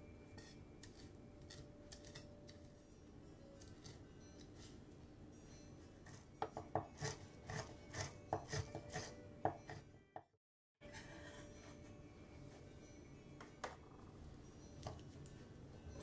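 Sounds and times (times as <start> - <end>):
knife chopping on cutting board: 6.4 - 9.8.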